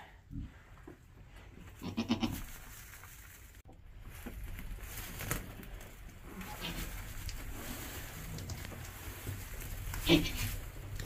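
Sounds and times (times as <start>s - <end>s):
goat bleating: 1.8s - 2.5s, 10.0s - 10.5s.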